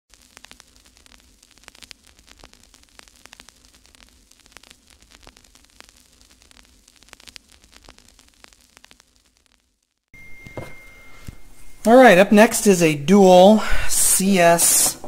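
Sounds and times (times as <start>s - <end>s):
crackling static clicks: 0.1s - 10.1s.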